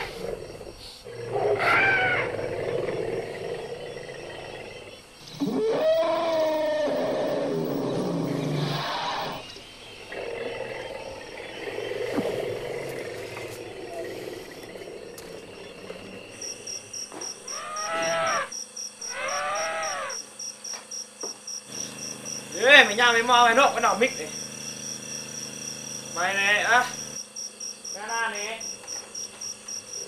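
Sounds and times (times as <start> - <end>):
crickets chirping: 0.0 - 30.0
elephant calling: 1.3 - 2.5, 5.3 - 16.3, 17.4 - 20.2.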